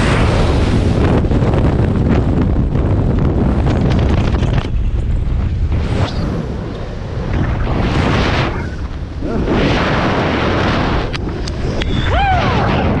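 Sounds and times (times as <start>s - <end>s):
wind buffeting microphone: 0.0s - 13.0s
person whooping yell: 12.0s - 13.0s.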